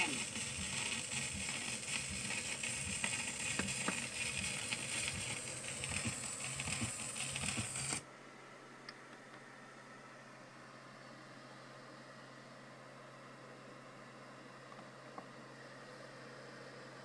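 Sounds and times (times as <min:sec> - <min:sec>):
record surface hiss and crackle: 0:00.0 - 0:08.1.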